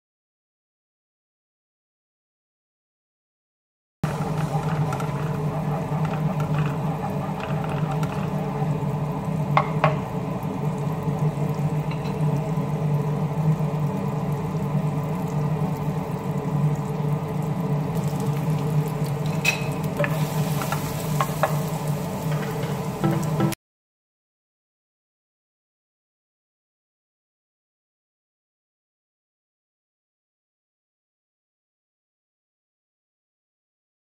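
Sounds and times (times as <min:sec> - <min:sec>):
food sizzling in a frying pan: 0:04.0 - 0:23.6.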